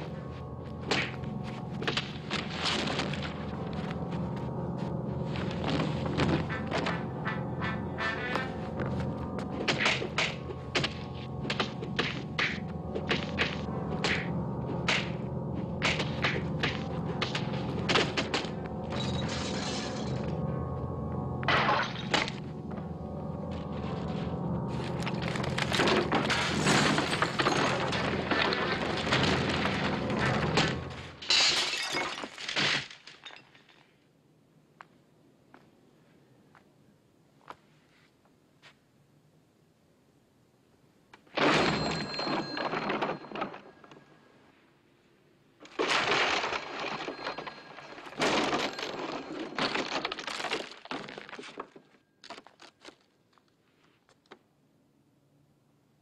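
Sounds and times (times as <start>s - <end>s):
debris crashing: 25.0s - 33.8s, 41.4s - 43.9s, 45.6s - 52.7s
glass shattering: 26.2s - 33.8s, 41.4s - 43.8s, 45.7s - 51.3s.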